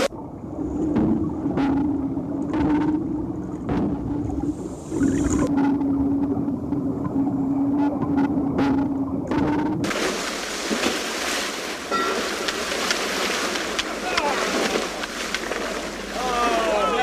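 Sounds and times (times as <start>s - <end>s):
muffled underwater hum: 0.0s - 10.0s
waves on water: 0.0s - 17.0s
wind: 0.0s - 17.0s.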